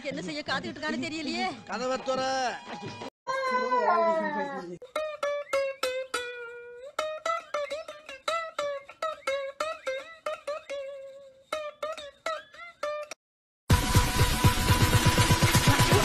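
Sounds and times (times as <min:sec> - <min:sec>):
plucked string melody: 0:04.8 - 0:13.2.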